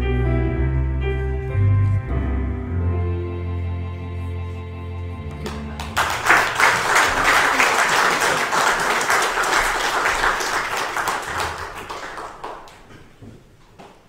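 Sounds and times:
congregation applauding: 5.2s - 13.2s.

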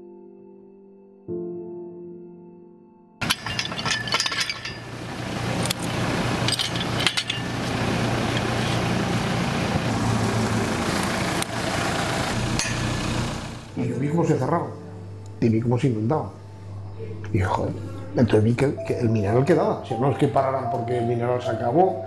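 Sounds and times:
steel pipes clinking: 3.2s - 9.6s
engine droning: 3.2s - 15.4s.

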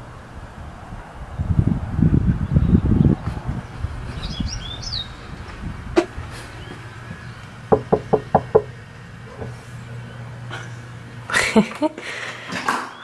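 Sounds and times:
bird chirping: 2.3s - 5.7s, 6.4s - 8.6s
knocking on wooden door: 7.7s - 8.7s.

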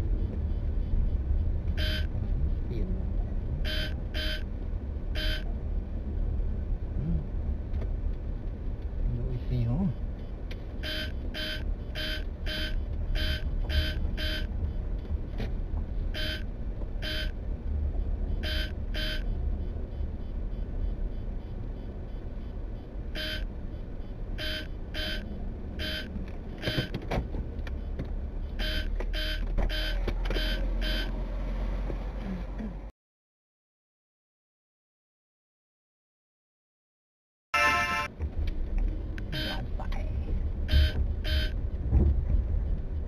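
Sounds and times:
vehicle rumble on road: 0.0s - 32.9s, 38.0s - 43.0s
short electronic beeps: 1.8s - 2.2s, 3.6s - 4.5s, 5.2s - 5.5s, 10.2s - 14.8s, 16.1s - 17.4s, 18.3s - 26.9s, 27.8s - 31.2s, 39.3s - 39.7s, 40.7s - 41.6s.

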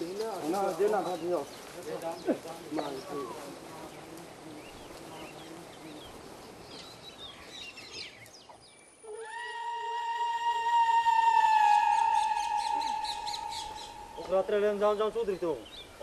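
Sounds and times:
birds chirping: 0.0s - 16.0s
long pitched note: 9.2s - 14.6s.

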